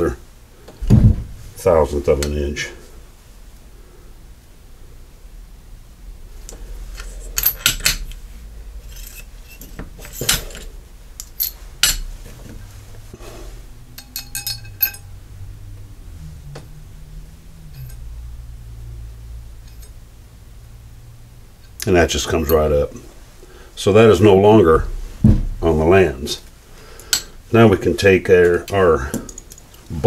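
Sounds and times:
metal-on-metal clinks: 6.9s - 8.2s, 8.8s - 12.1s, 13.9s - 15.2s, 17.7s - 18.0s.

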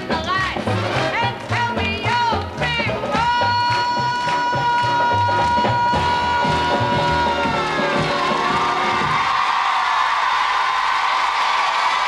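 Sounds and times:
audience clapping: 0.0s - 6.0s, 6.8s - 12.0s
audience cheering: 6.7s - 12.0s.

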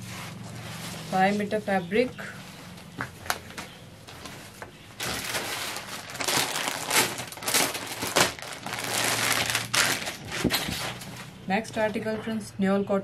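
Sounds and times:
plastic packaging crinkling: 4.1s - 11.3s.

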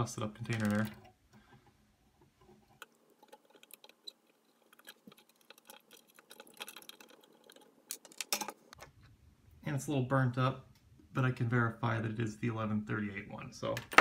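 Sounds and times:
metal tweezers clicking and scraping: 2.7s - 8.7s.

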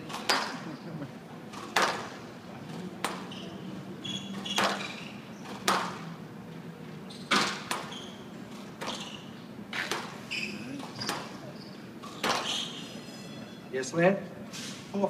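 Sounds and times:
squash ball hits: 0.1s - 0.6s, 1.5s - 2.2s, 3.0s - 3.3s, 4.4s - 6.0s, 7.3s - 7.9s, 9.7s - 10.2s, 12.0s - 12.5s
shoes squeaking on court: 2.6s - 5.8s, 6.8s - 13.6s.

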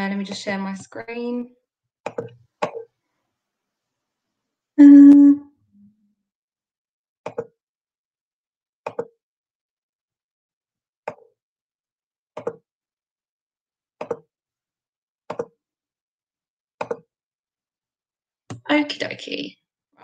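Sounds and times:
computer mouse clicks: 8.9s - 9.1s.

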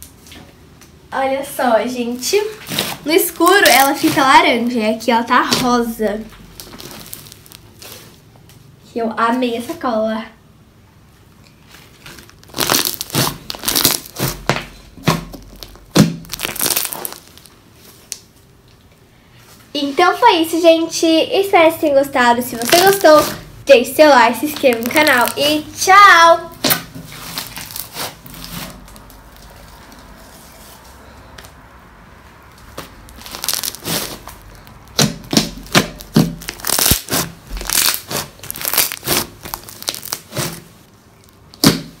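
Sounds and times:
slime crackling squishes: 1.6s - 8.3s, 11.6s - 18.3s, 22.3s - 30.8s, 32.4s - 42.0s.

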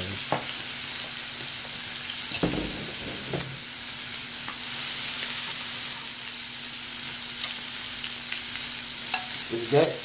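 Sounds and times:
food sizzling on a grill: 0.0s - 10.0s.

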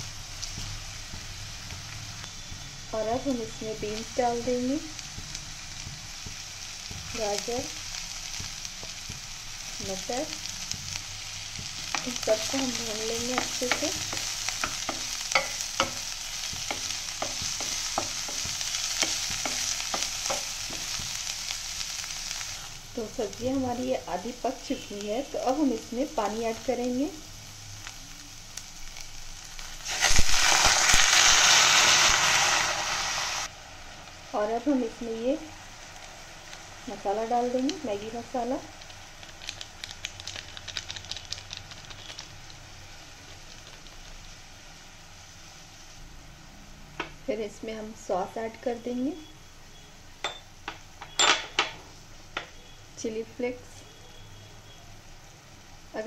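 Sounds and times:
vegetables sizzling in oil: 0.0s - 56.0s
crackling pops: 27.8s - 32.2s, 37.2s - 44.4s.

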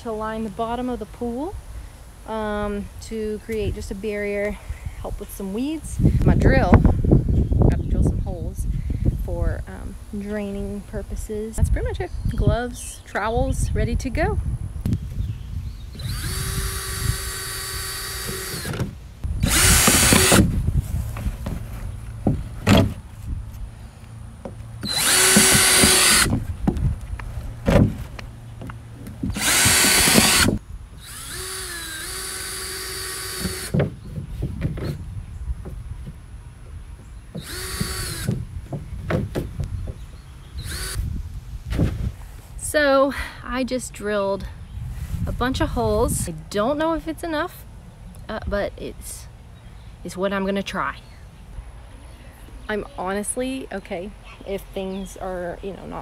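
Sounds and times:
cordless drill boring plastic: 16.0s - 20.5s, 24.8s - 26.3s, 29.3s - 33.8s, 37.4s - 38.4s, 40.6s - 41.0s.

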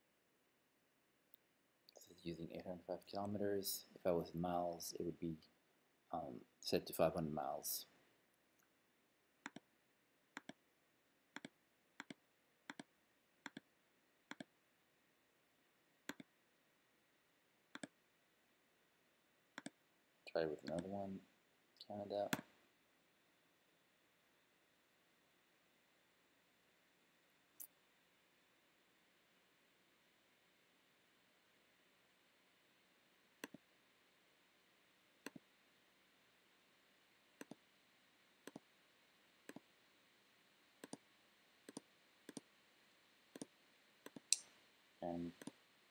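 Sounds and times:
faint room hiss: 0.0s - 45.9s
computer mouse clicks: 9.4s - 9.7s, 10.4s - 10.6s, 11.4s - 13.7s, 14.3s - 14.5s, 16.1s - 16.3s, 17.7s - 18.0s, 19.6s - 19.8s, 20.6s - 20.9s, 22.3s - 22.5s, 33.4s - 33.6s, 35.2s - 35.4s, 37.4s - 37.6s, 38.4s - 38.7s, 40.8s - 41.0s, 41.6s - 42.5s, 43.3s - 44.5s, 45.3s - 45.6s.

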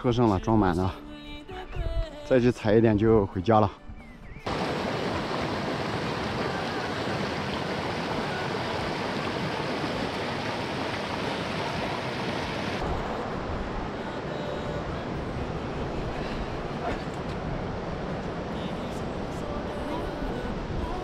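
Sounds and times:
stream rushing over stones: 4.5s - 21.0s.

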